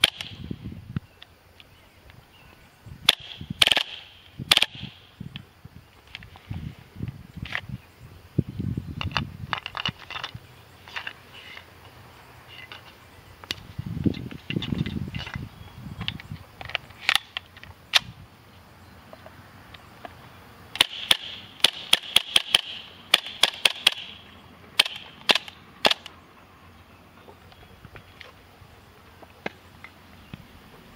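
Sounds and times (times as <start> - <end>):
airsoft gun firing sharp pops: 0.0 - 0.4, 3.1 - 5.0, 20.8 - 24.1, 24.8 - 26.1.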